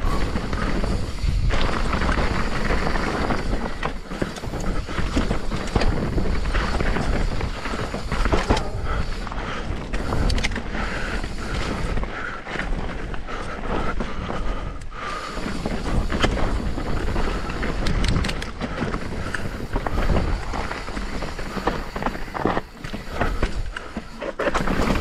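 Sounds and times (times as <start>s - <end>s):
wind on microphone: 0.0s - 12.1s
bike knocking and rattling: 0.0s - 25.0s
bike tyres rolling over rock: 0.0s - 25.0s.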